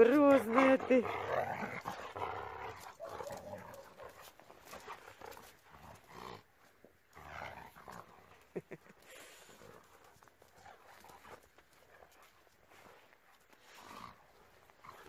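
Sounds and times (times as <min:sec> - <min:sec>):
dogs growling: 0:00.0 - 0:15.0.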